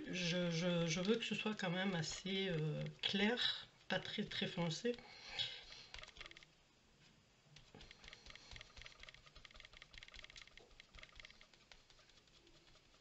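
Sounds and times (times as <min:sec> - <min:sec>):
foam disc patting on paper: 0:07.6 - 0:13.0.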